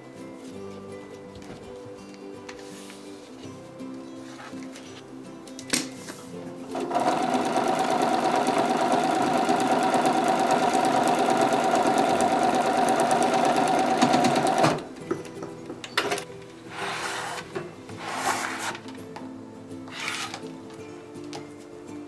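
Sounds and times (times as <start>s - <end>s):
sewing machine stitching: 6.7s - 14.9s.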